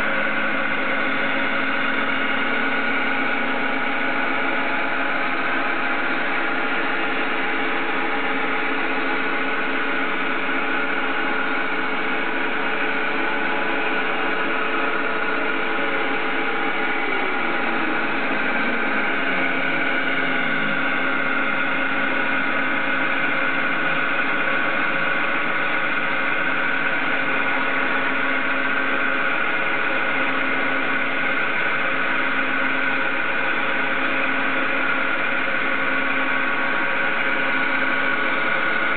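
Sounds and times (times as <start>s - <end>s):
lathe spindle hum: 0.0s - 38.9s
stepper motors whining: 10.6s - 28.2s.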